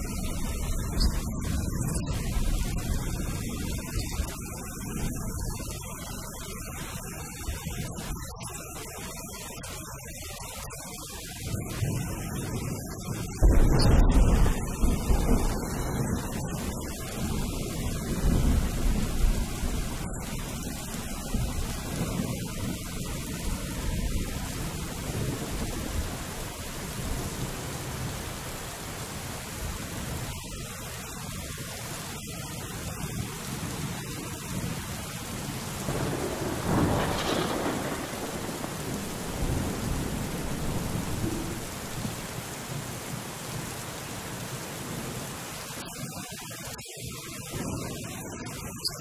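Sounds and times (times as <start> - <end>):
steady rain: 0.0 - 49.0
rolling thunder: 13.2 - 27.6, 35.8 - 42.4.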